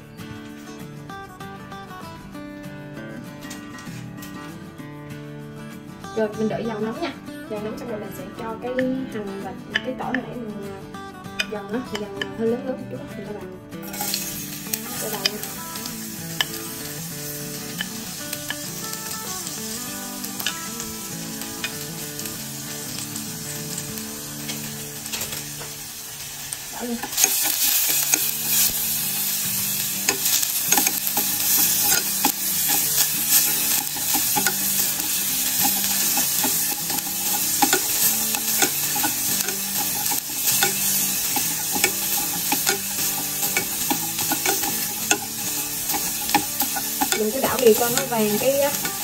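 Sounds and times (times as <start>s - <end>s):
shallots and garlic frying: 6.2s - 49.0s
spatula scraping and tapping pan: 13.8s - 25.9s, 27.0s - 49.0s.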